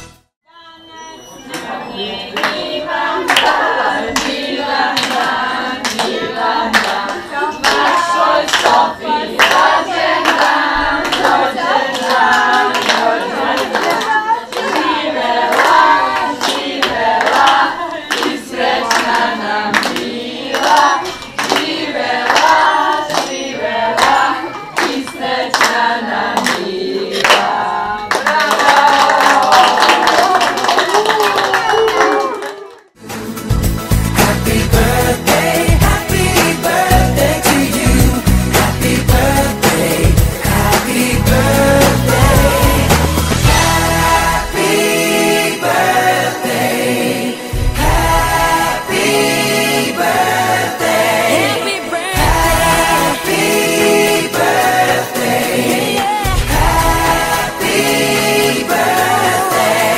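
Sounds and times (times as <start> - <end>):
group of people singing together: 0.6 - 30.7, 33.0 - 59.9
people clapping in time: 2.3 - 33.3.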